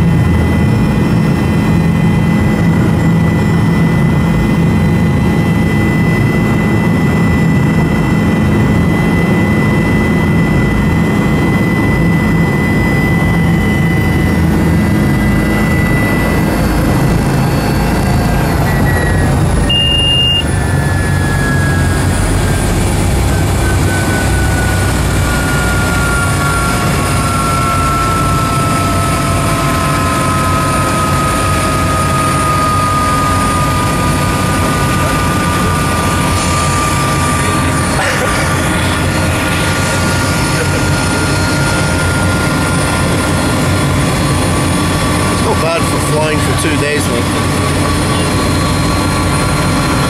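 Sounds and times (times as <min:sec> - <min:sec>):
helicopter engine and rotor: 0:00.0 - 0:50.0
short high beep: 0:18.6 - 0:21.9.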